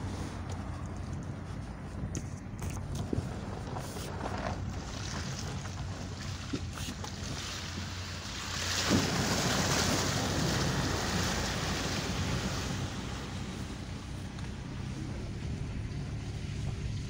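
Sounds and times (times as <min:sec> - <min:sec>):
car engine running low: 0:00.0 - 0:17.0
water spraying against car: 0:00.0 - 0:17.0
water splash: 0:04.7 - 0:13.9.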